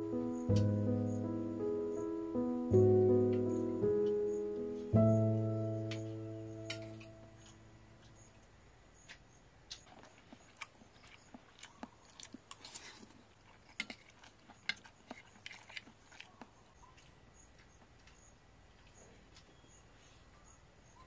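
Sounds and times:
person chewing: 9.1 - 18.2.

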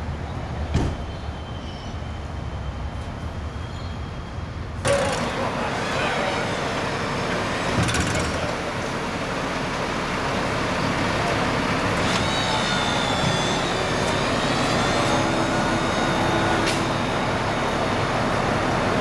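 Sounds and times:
trailer rolling noise: 2.0 - 19.0
diesel truck engine running: 4.8 - 19.0
high-pitched squeal: 11.9 - 18.6.

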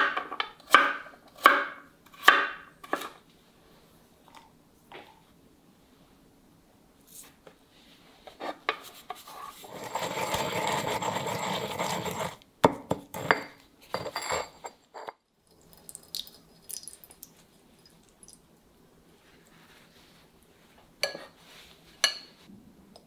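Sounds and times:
pestle grinding in stone mortar: 9.6 - 13.4.

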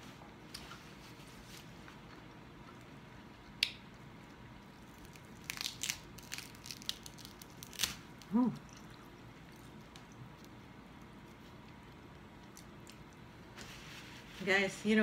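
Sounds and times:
crispy pork skin crackling: 4.6 - 13.4.

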